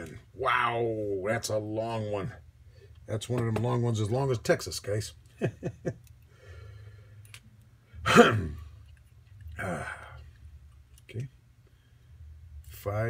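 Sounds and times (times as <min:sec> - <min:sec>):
man murmuring: 0:09.6 - 0:10.2
man sighing: 0:09.6 - 0:10.2.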